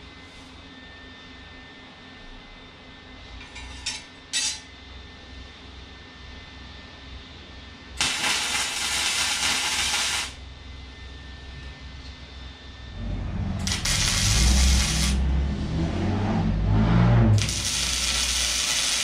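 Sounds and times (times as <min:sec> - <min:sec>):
arc welding crackling hiss: 0:08.0 - 0:10.4, 0:13.6 - 0:15.2, 0:17.4 - 0:19.0
low rumble: 0:12.8 - 0:18.3.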